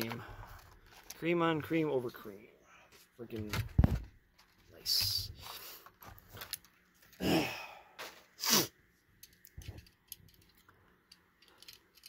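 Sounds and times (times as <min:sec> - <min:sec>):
man sighing: 0:07.1 - 0:08.7.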